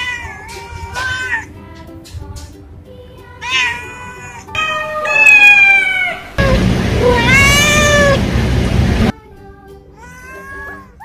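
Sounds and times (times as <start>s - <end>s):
cat meowing: 3.4s - 8.2s.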